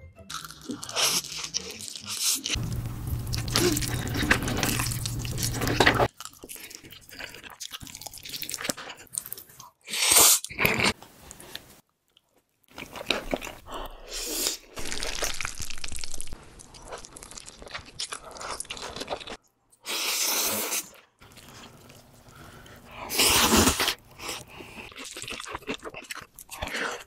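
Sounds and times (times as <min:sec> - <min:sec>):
chewing: 0:03.3 - 0:09.8, 0:12.1 - 0:19.4, 0:21.0 - 0:27.0
slurping noodles: 0:19.8 - 0:25.5.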